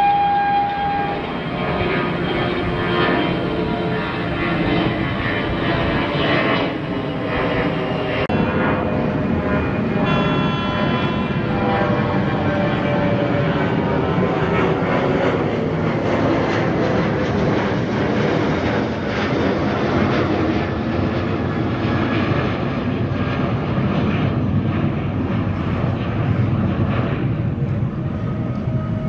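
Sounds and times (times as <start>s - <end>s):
electric locomotive roaring: 0.0s - 6.0s, 7.8s - 20.6s.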